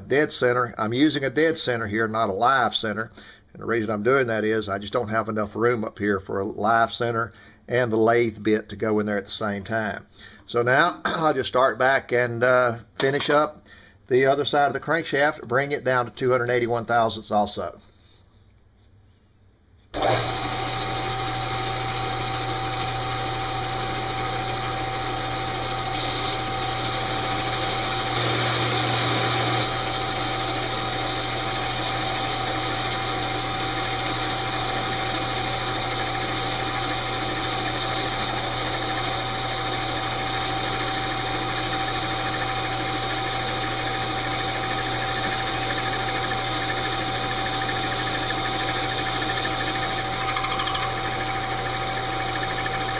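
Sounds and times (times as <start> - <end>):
metal lathe motor whine: 20.0 - 52.9.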